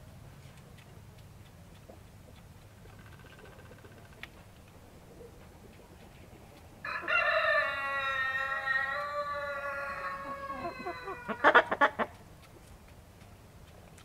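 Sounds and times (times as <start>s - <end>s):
chicken clucking: 4.9s - 14.0s
chicken drawn-out call: 6.8s - 12.2s.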